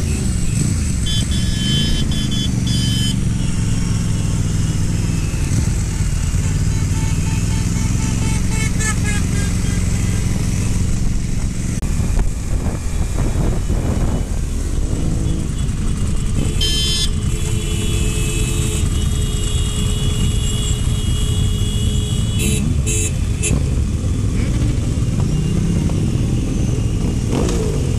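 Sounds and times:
motorcycle engine: 0.0 - 27.9
other motorcycle engines: 0.0 - 27.9
wind noise: 10.2 - 17.3.

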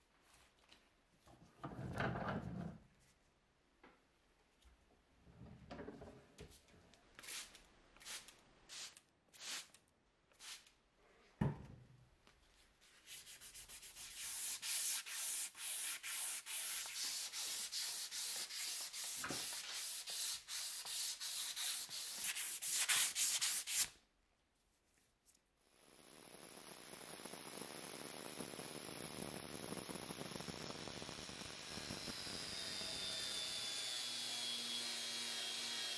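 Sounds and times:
knock: 11.4 - 11.7
sandpaper rubbing on metal: 13.0 - 23.9.

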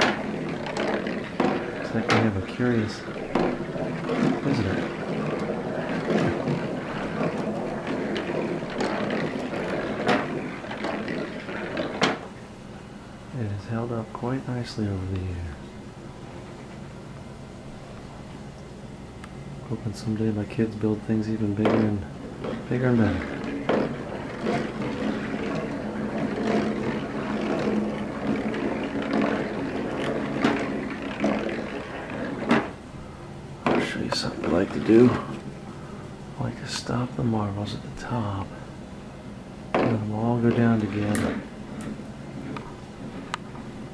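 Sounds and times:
marbles rolling on track: 0.0 - 12.3, 21.2 - 32.8, 33.6 - 35.3, 39.7 - 41.8.

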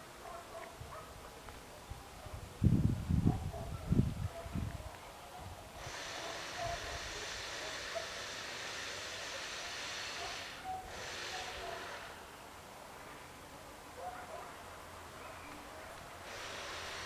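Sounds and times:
steady hiss: 5.7 - 13.9, 14.5 - 17.0.

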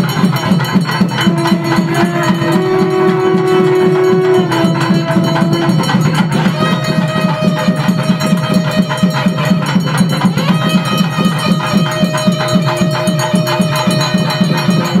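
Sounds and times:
drum beating fast rhythm: 0.0 - 15.0
steady held tone: 0.9 - 8.6.

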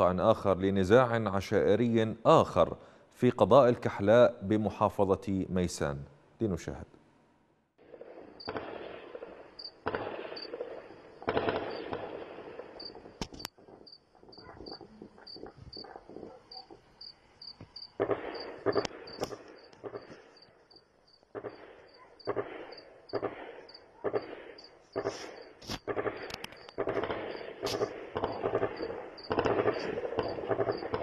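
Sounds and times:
gunfire volleys and sharp shots: 7.8 - 16.8, 17.8 - 20.5, 21.3 - 31.0
cricket chirping: 8.1 - 31.0.

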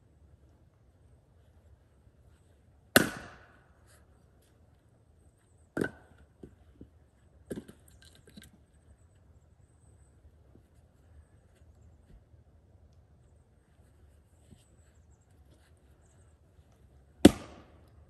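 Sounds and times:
axe striking wood: 3.0 - 3.5, 5.8 - 6.0, 17.2 - 17.8.

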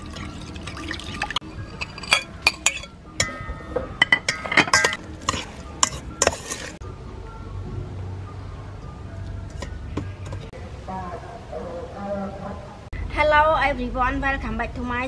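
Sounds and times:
metal spoon clinking against bowl: 1.7 - 3.4, 4.0 - 6.7.

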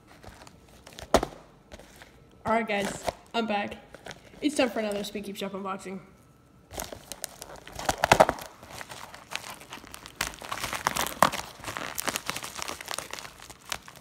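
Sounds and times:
plastic mailer crinkling: 6.7 - 14.0.

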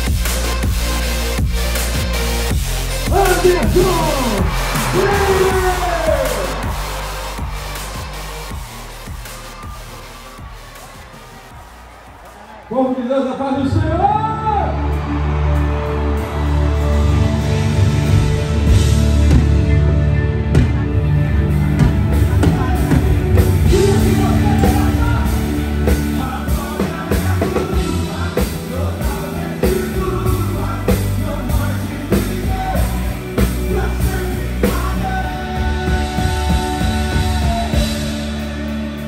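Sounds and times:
drum kit beat: 0.0 - 12.5, 20.6 - 39.0
keyboard chords: 0.0 - 39.0
person singing: 22.3 - 39.0.

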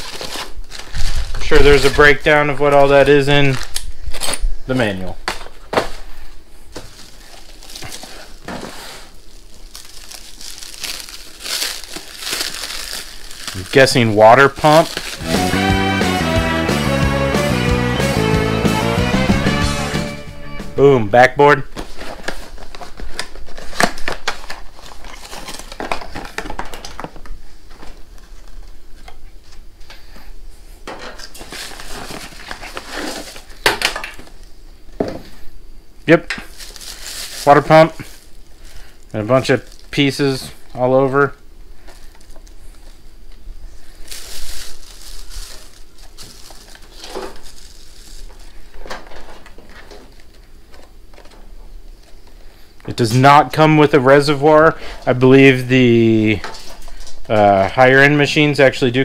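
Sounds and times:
plastic wrap crinkling: 0.0 - 4.1, 4.8 - 15.3, 21.7 - 28.7, 31.2 - 34.0, 36.4 - 52.4
rustling: 43.6 - 51.3.

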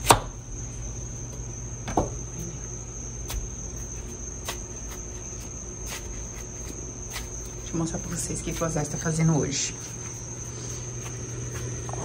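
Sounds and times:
crickets chirring: 0.0 - 12.0
knife cutting watermelon: 3.2 - 8.9.

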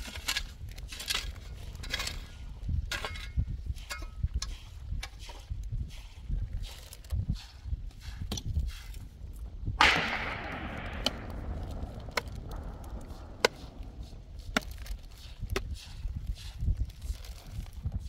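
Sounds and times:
loud crash: 9.8 - 14.4
sharp knocks: 9.8 - 14.9
low rumble: 9.8 - 15.5.

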